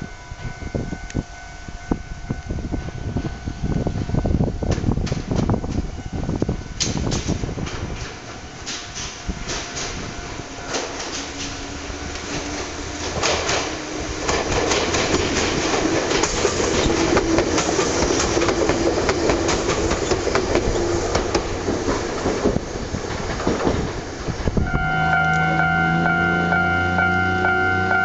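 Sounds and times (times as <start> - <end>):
train running gear hum: 0.0 - 28.0
train wheels clattering over joints: 6.8 - 24.6.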